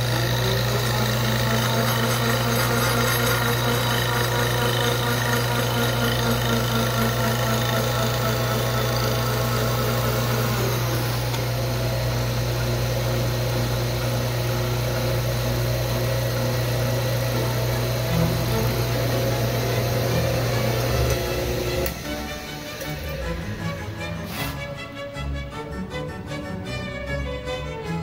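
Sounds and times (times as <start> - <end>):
cutter milling wood: 0.0 - 25.0
milling machine hum: 0.0 - 25.5.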